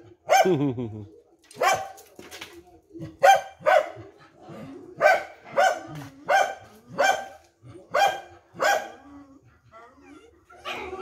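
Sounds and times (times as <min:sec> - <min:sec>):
dog barking: 0:00.2 - 0:00.6, 0:01.6 - 0:02.0, 0:03.2 - 0:04.1, 0:05.0 - 0:09.0.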